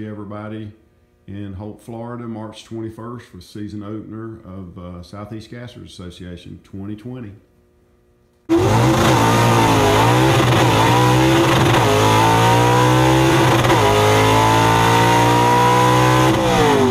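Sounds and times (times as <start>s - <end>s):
racing engine at full throttle: 8.5s - 16.9s.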